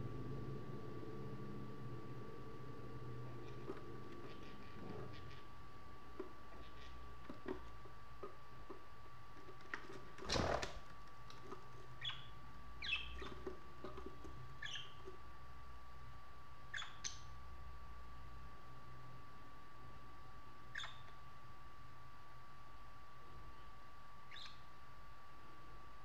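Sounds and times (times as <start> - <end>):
faint steady hum: 0.0 - 26.0
budgerigars chirping: 12.0 - 13.3, 14.6 - 15.0, 16.7 - 17.2, 20.8 - 21.1, 24.3 - 24.6.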